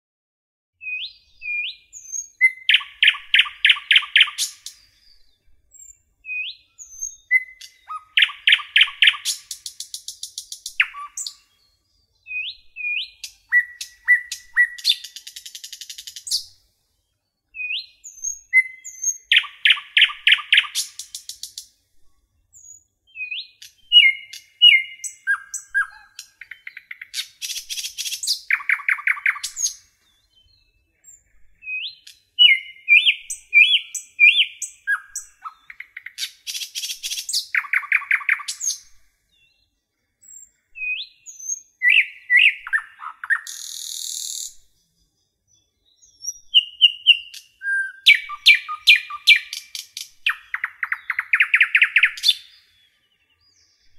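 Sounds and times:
songbird chirping and trilling: 0:00.8 - 0:53.9.

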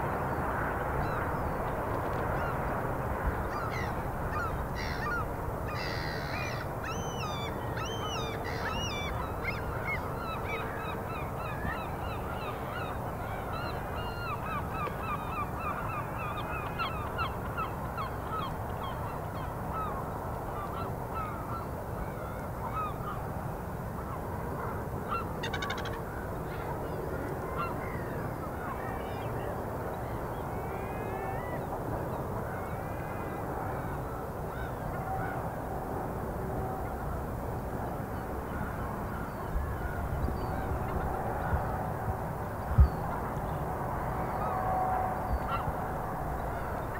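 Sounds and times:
birds calling: 0:03.4 - 0:20.0.

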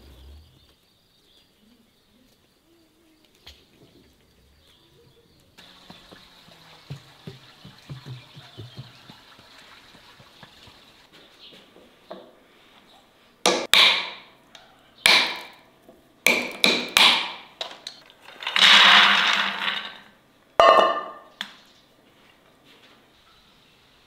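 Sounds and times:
sharp knocks of hard objects: 0:13.5 - 0:14.3, 0:15.0 - 0:15.6, 0:16.3 - 0:17.8.

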